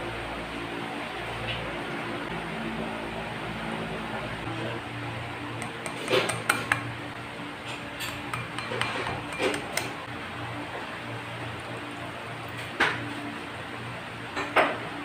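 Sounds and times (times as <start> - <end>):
spoon clinking on glass bowl: 5.6 - 6.9, 8.0 - 10.0.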